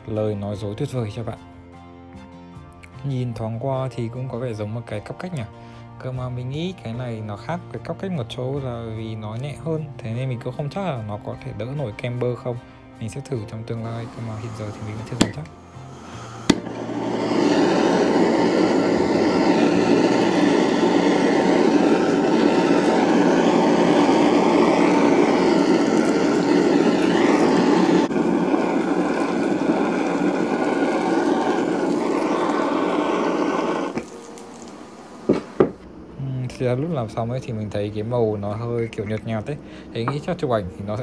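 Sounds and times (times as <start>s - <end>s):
blowtorch flame hissing: 13.8s - 41.0s.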